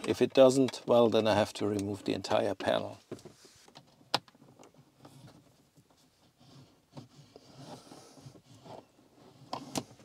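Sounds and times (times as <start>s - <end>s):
wire rustling and scraping: 3.2s - 10.0s.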